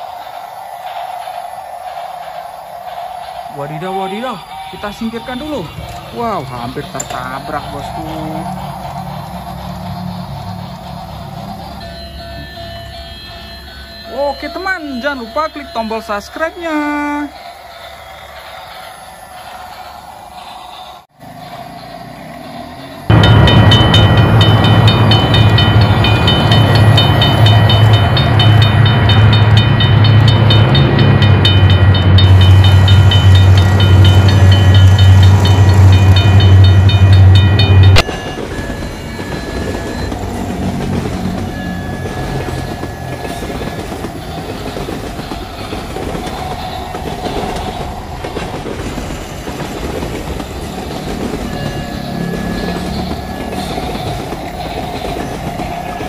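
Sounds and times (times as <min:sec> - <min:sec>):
toy trains humming: 0:00.0 - 0:56.0.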